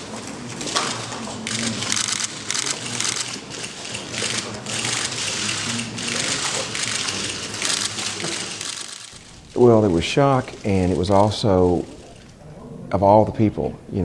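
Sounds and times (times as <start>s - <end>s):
camera shutters clicking: 0.6s - 9.2s.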